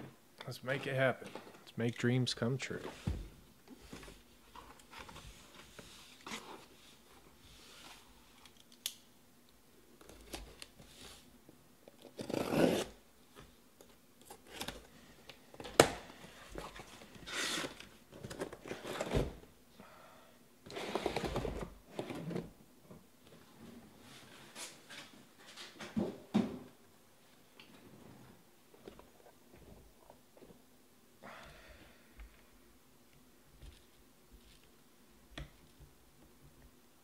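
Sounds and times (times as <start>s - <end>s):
cardboard rustling and scraping: 2.8s - 8.1s
packing tape tearing: 11.9s - 13.0s.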